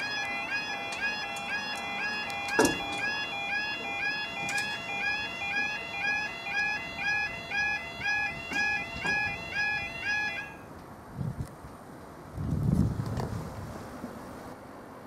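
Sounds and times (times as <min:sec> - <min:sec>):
level crossing alarm warbling: 0:00.0 - 0:10.7.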